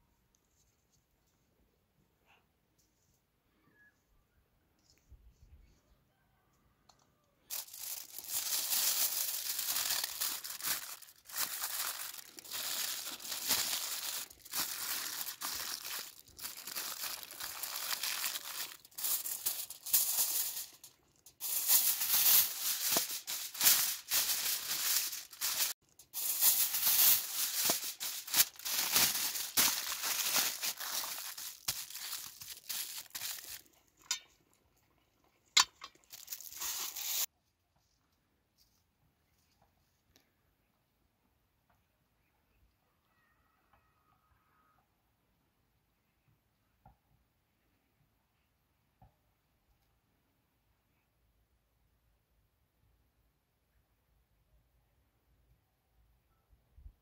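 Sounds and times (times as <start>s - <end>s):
aluminium foil crinkling: 7.5s - 34.3s, 35.5s - 37.3s.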